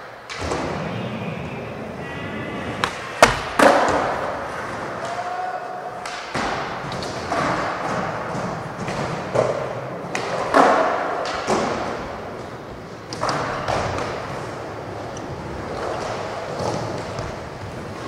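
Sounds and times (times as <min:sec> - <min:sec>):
skateboard wheels rolling: 0:00.1 - 0:05.3, 0:06.3 - 0:18.0
skateboard clacks and thuds: 0:02.7 - 0:05.1, 0:06.1 - 0:14.6.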